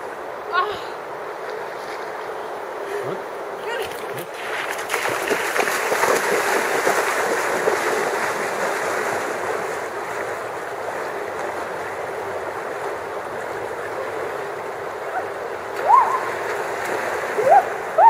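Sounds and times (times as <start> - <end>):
river water rushing: 0.0 - 18.0
feet splashing in water: 3.8 - 15.0, 15.6 - 18.0.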